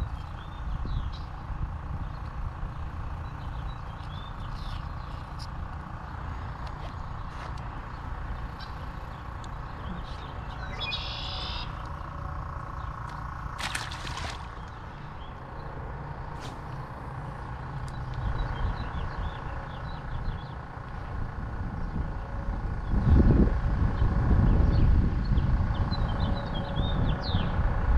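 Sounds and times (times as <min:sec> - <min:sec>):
low steady rumble: 0:00.0 - 0:27.9
bird chirps: 0:08.5 - 0:12.0
bird trill: 0:09.6 - 0:11.8.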